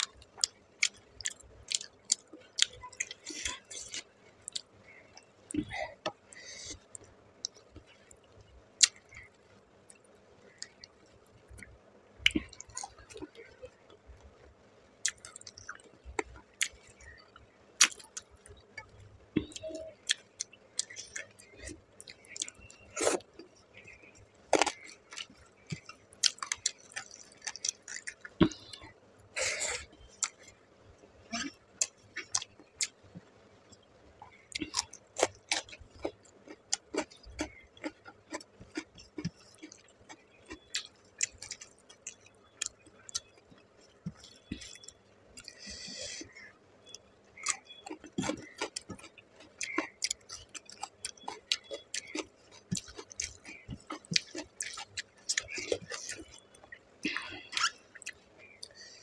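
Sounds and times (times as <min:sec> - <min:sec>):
wet chewing: 0:33.7 - 0:58.8.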